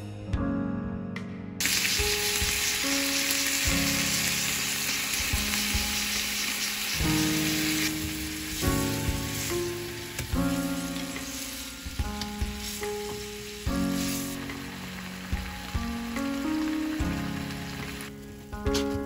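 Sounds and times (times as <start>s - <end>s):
meat sizzling in a frying pan: 1.6s - 18.7s.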